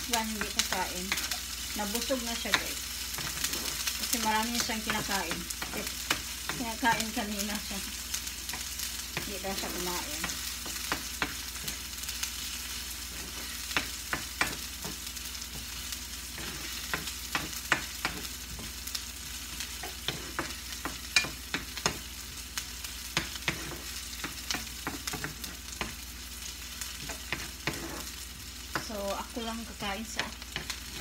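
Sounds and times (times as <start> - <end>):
garlic and onion sizzling in oil: 0.0 - 31.0
utensil scraping pan: 2.4 - 7.2, 13.0 - 18.8, 23.2 - 26.0, 26.9 - 28.2.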